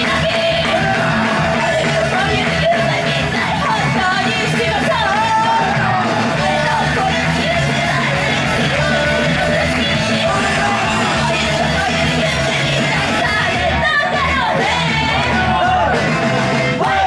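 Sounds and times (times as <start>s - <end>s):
woman singing into microphone: 0.0s - 15.6s
pop-rock backing music: 0.0s - 17.0s.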